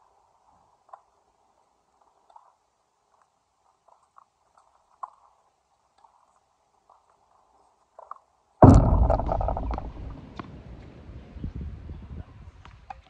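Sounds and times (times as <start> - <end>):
faint ticks: 1.9 - 8.3
loud thump close to microphone: 8.6 - 10.2
rumbling rattling noise: 8.6 - 10.5.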